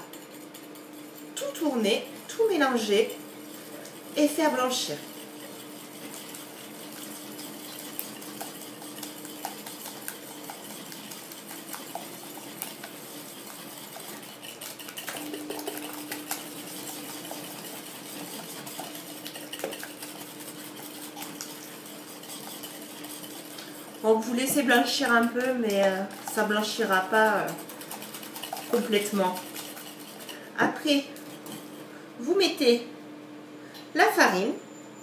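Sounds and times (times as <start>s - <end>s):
whisk clicking against glass bowl: 4.9s - 30.4s.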